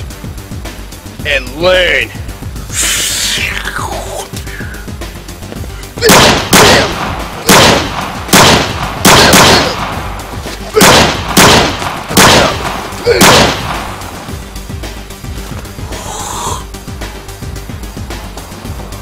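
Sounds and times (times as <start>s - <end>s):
pistol shots: 6.0s - 10.2s, 10.8s - 14.2s.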